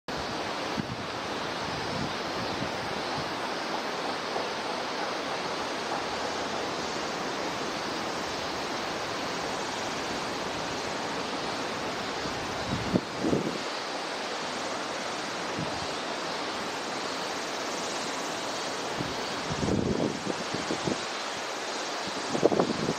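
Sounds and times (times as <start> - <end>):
flowing water rushing: 0.1 - 22.9.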